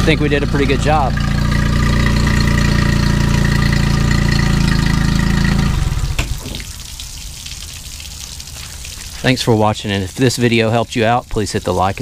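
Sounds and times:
engine knocking as it stops: 0:00.0 - 0:06.4
outboard engine idling: 0:00.0 - 0:10.9
running water: 0:00.0 - 0:12.0.

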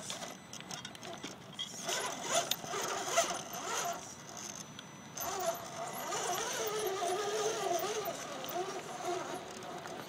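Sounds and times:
electric motor whining: 0:01.8 - 0:04.1, 0:05.2 - 0:10.0.

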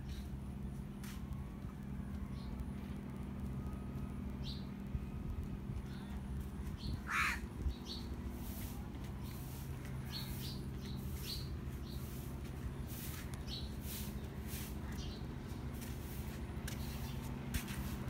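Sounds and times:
low mechanical hum: 0:00.0 - 0:18.0
small birds chirping: 0:05.7 - 0:17.5.

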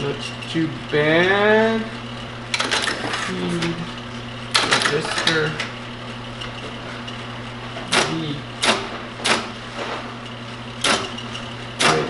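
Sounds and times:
steady machine hum: 0:00.0 - 0:12.0
keypunch mechanical clacks: 0:02.5 - 0:03.4, 0:04.5 - 0:05.7, 0:07.8 - 0:09.6, 0:10.8 - 0:12.0.

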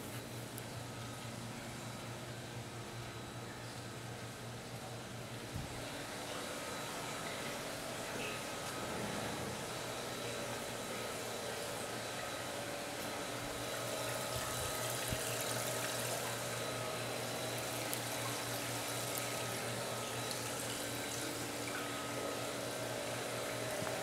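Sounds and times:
aquarium water moving: 0:05.7 - 0:24.0.

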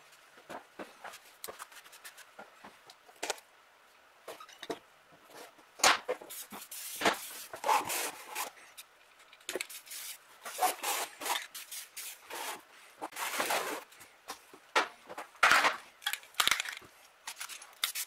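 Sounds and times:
spray paint can hissing: 0:09.6 - 0:10.2.

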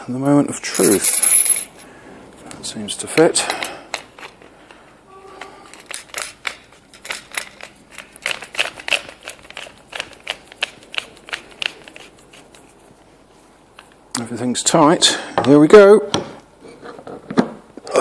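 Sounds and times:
metal tube sections clicking: 0:05.4 - 0:12.6.

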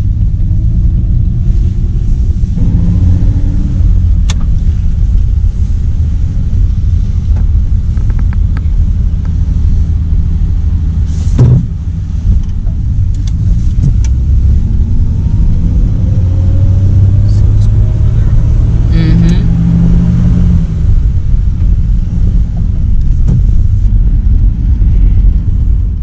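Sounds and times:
car engine and road rumble: 0:00.0 - 0:26.0
thump: 0:11.3 - 0:11.7.

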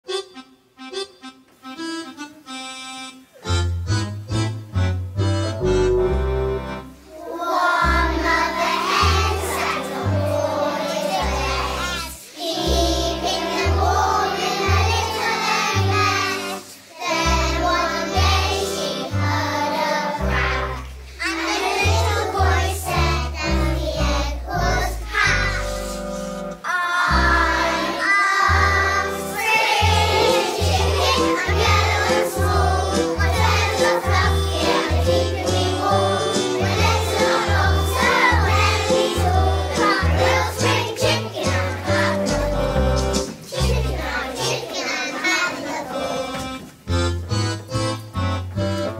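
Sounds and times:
instrumental accompaniment: 0:00.0 - 0:48.9
children's choir singing: 0:05.6 - 0:47.5.

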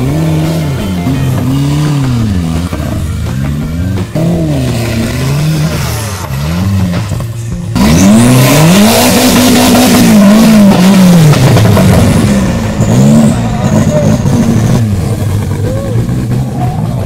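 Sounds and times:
buggy engine revving hard: 0:00.0 - 0:17.0.

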